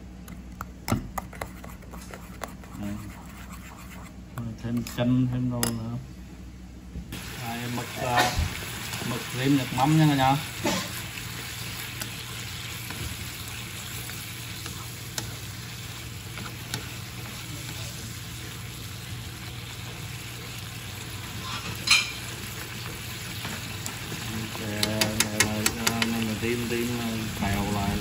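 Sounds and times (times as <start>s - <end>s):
squid sizzling in a wok: 7.1s - 24.8s.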